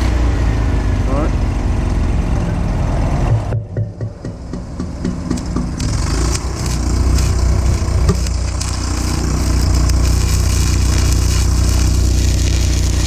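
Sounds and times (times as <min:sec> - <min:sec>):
engine drone: 0:00.0 - 0:13.0
welding arc crackling: 0:05.2 - 0:13.0.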